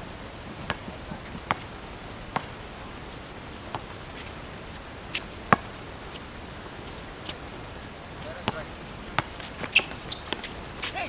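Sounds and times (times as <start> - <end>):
background noise: 0.0 - 11.0
basketball bouncing on concrete: 0.6 - 1.7, 5.5 - 5.8, 8.2 - 11.0.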